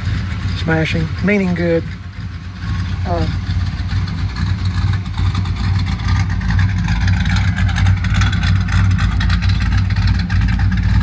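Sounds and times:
pickup truck engine idling: 0.0s - 11.0s.

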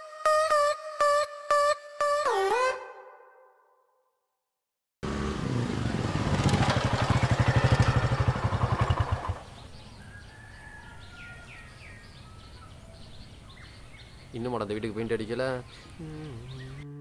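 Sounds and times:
motorcycle engine running: 5.0s - 9.9s
birds chirping: 5.7s - 17.0s.

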